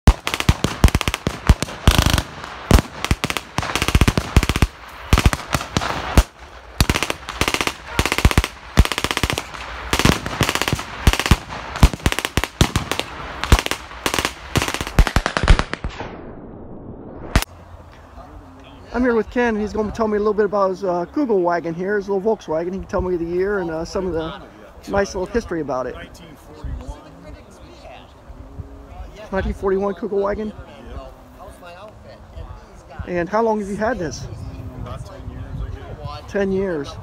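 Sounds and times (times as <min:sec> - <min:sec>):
rifle shots: 0:00.0 - 0:16.4
machine-gun bursts: 0:00.1 - 0:15.8.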